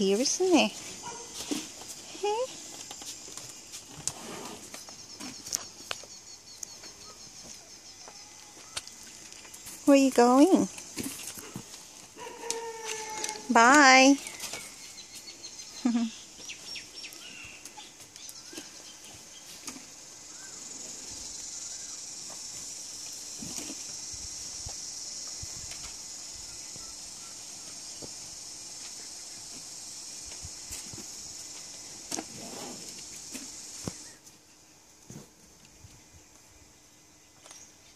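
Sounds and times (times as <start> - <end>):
high-pitched insect drone: 12.2 - 14.3, 20.2 - 34.2
faint chirps: 12.2 - 19.6, 20.2 - 30.6.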